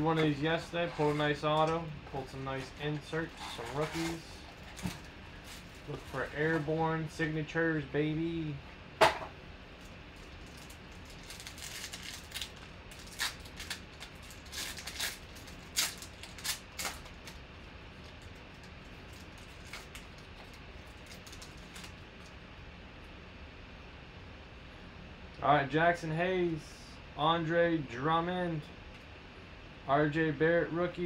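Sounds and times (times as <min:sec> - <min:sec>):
foil wrapper crinkling and tearing: 0:09.8 - 0:22.3.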